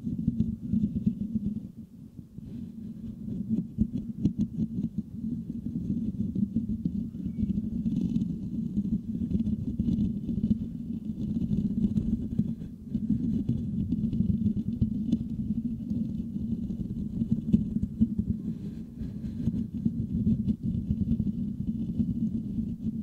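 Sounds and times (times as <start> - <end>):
fingertips scratching microphone grille: 0.0 - 1.8, 2.4 - 23.0.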